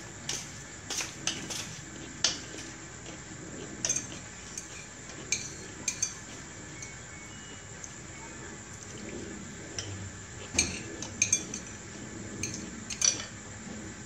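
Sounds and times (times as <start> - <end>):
utensils clinking on ceramic plates: 3.8 - 7.0, 9.8 - 11.8, 12.4 - 13.4.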